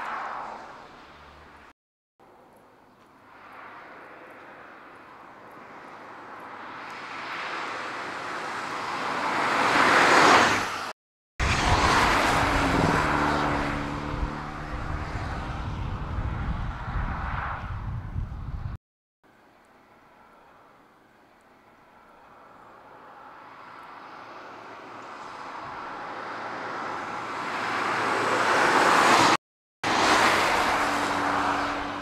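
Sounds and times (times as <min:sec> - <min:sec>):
car driving past: 0:11.4 - 0:17.6.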